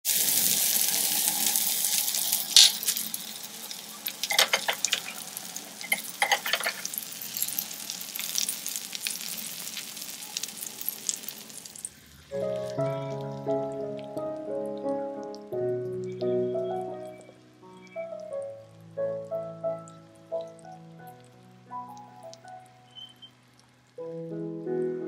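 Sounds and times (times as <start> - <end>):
food sizzling on hot plate: 0.0 - 15.4
music: 12.3 - 25.0.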